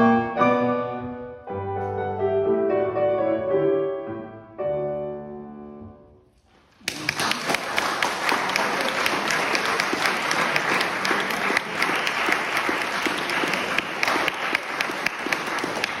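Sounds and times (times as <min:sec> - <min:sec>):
crowd applauding: 0:06.5 - 0:16.0
single sharp claps: 0:06.8 - 0:16.0.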